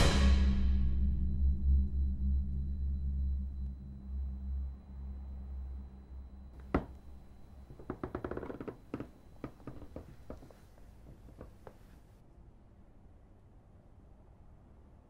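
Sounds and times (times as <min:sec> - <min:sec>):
knocks on a door: 0:06.6 - 0:07.1.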